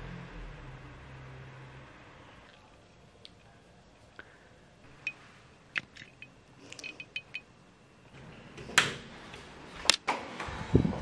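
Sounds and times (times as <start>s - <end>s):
small metallic clinks: 5.8s - 7.5s
ringing taps: 6.9s - 7.5s.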